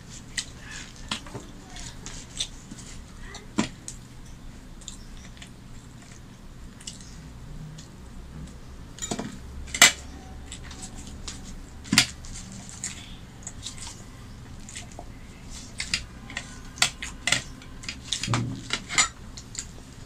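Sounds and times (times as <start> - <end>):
low steady hum: 0.0 - 20.0
tableware clinking: 9.0 - 13.0, 14.6 - 19.7.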